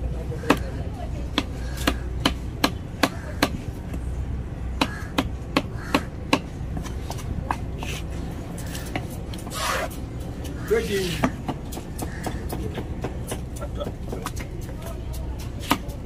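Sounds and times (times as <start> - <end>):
cleaver chopping on wooden block: 1.3 - 3.6, 4.8 - 7.9, 11.1 - 14.7, 15.4 - 16.0.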